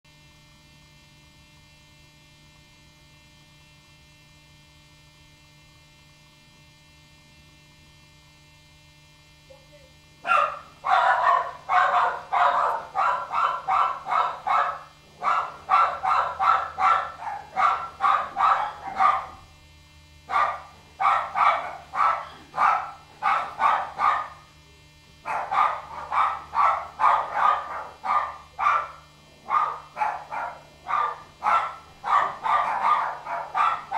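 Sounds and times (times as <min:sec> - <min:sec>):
electrical hum: 0:00.1 - 0:33.9
dog barking rapidly: 0:10.2 - 0:19.5, 0:20.3 - 0:24.6, 0:25.2 - 0:33.9.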